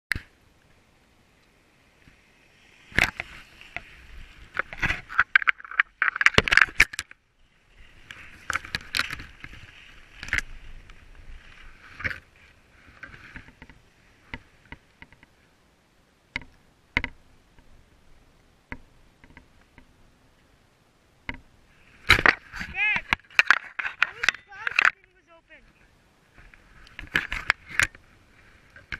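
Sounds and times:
skis scraping over snow: 0.7s - 5.1s, 7.4s - 15.5s
sharp clicks and knocks: 4.5s - 7.2s, 16.3s - 17.7s, 21.2s - 25.2s.

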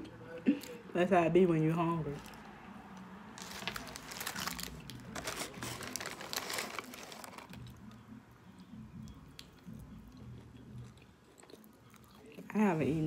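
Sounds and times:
soft chewing: 2.2s - 12.8s
paper wrapper crinkling: 3.4s - 7.7s.

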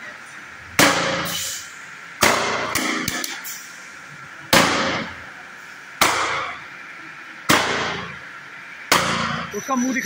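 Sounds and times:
plastic pipe slammed on concrete: 2.2s - 3.3s.

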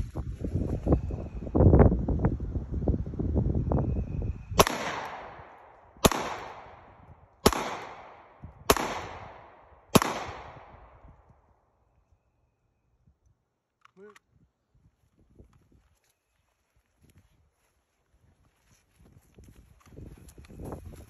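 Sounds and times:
wind buffeting microphone: 0.0s - 11.6s, 14.3s - 16.0s, 16.8s - 21.0s
handgun shots with echo: 4.6s - 11.0s.

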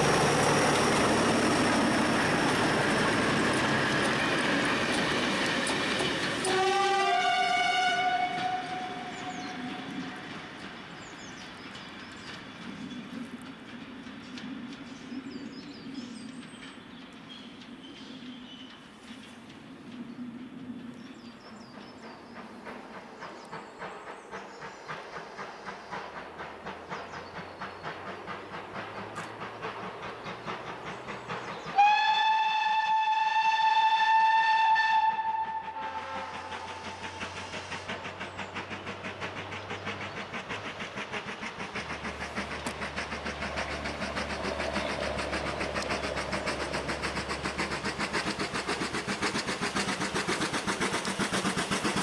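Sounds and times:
steam locomotive exhaust beats: 0.0s - 52.0s
steam locomotive whistle: 6.4s - 10.1s, 31.7s - 37.1s.

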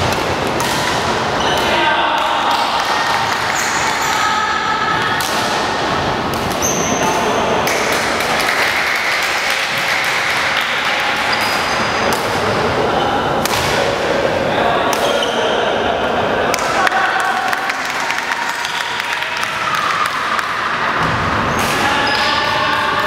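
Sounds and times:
racket hitting shuttlecock: 0.0s - 4.0s, 5.1s - 6.6s, 13.4s - 14.0s
sports hall hubbub: 0.0s - 23.0s
shoes squeaking on wooden court: 6.5s - 7.2s, 21.5s - 22.4s.

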